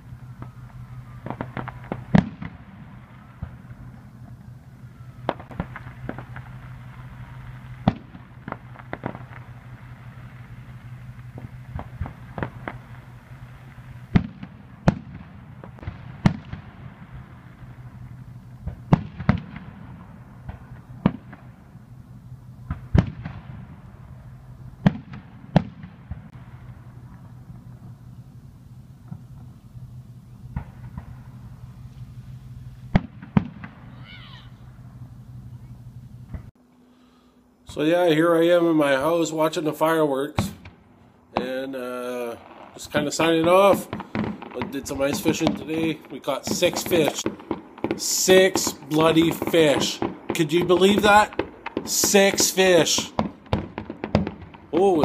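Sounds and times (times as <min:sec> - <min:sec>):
fireworks bangs: 0:00.0 - 0:36.6, 0:37.7 - 0:55.0
low hum: 0:00.0 - 0:39.7.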